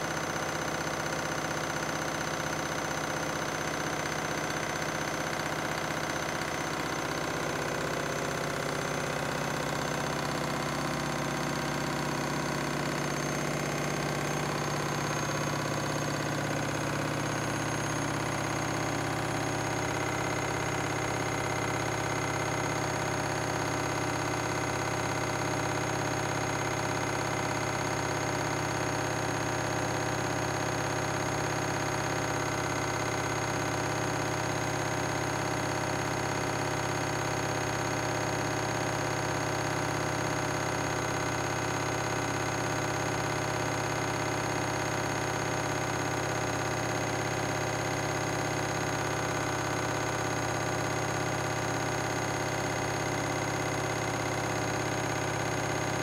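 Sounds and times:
washing machine drum spinning: 0:03.4 - 0:23.8.

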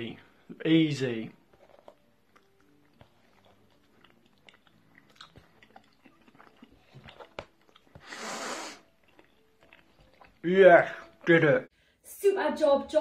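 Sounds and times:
person chewing crunchy food: 0:01.4 - 0:11.4.

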